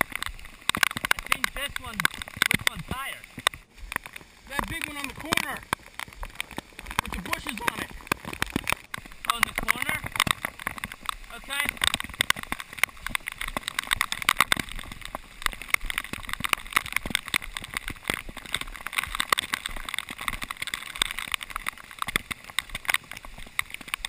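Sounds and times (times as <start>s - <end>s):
crackle of clicks and knocks: 0.0s - 24.0s
rushing flood water: 0.0s - 24.0s.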